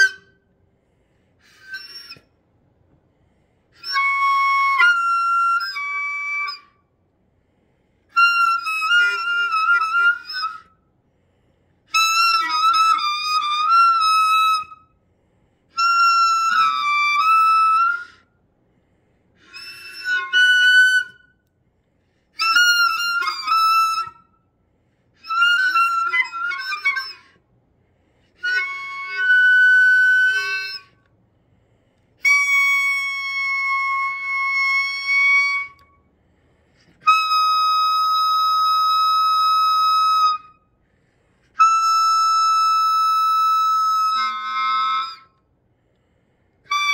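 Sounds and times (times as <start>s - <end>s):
reedy whistling tones from scuba gear: 0.0s - 0.7s, 1.4s - 2.6s, 3.7s - 7.0s, 19.4s - 21.4s, 25.1s - 27.5s, 28.2s - 31.1s.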